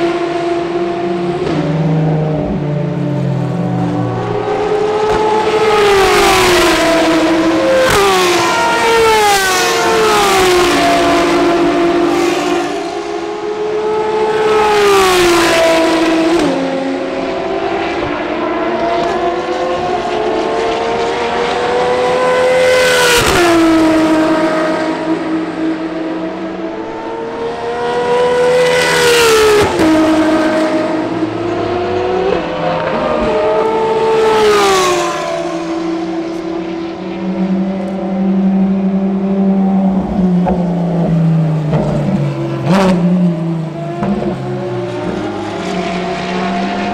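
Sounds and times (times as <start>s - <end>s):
race cars passing at full throttle: 0.0s - 46.9s.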